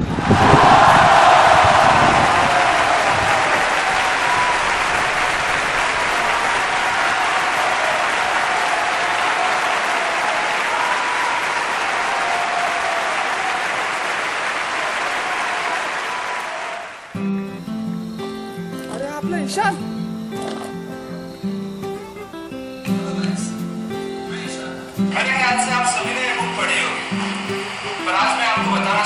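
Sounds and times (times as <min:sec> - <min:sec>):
audience applauding: 0:00.0 - 0:17.3, 0:24.3 - 0:29.0.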